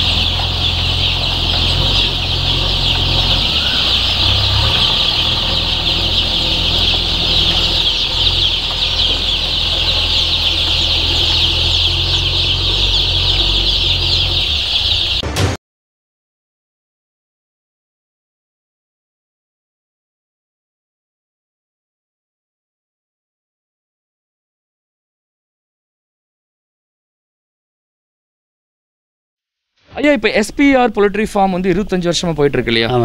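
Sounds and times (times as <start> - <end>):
chicks peeping: 0.0 - 15.6.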